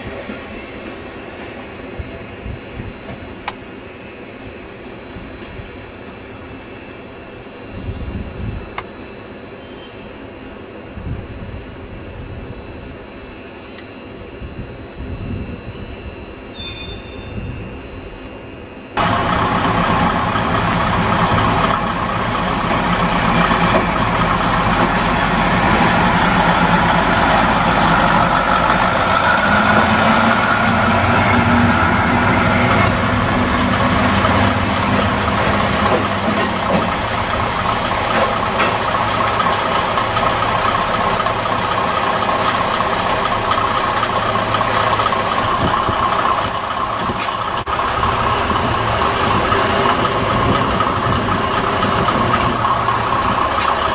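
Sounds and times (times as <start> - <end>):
diesel railcar engines idling: 17.6 - 53.9
higher engine hum: 19.0 - 53.9.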